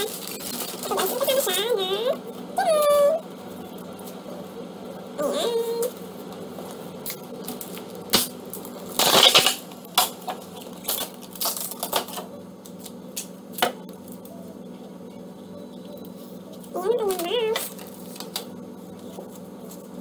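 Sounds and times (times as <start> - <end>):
plastic packaging crackling: 0.0 - 2.0, 6.3 - 14.3, 16.1 - 20.0.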